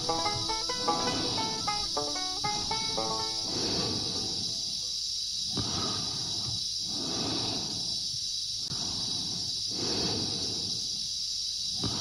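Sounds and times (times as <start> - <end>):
quick run of pitched notes: 0.0 - 4.8
steady high hiss: 0.0 - 12.0.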